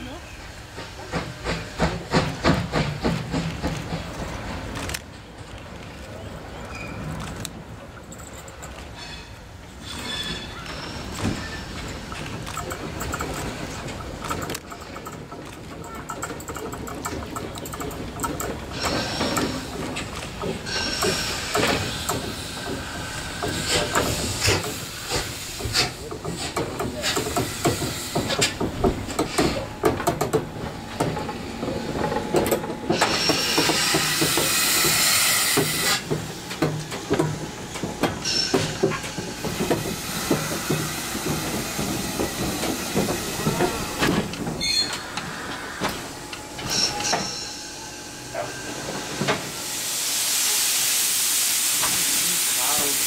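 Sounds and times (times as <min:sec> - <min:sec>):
steam locomotive wheels clanking: 0:00.4 - 0:53.0
steam hissing: 0:17.6 - 0:31.0, 0:32.8 - 0:53.0.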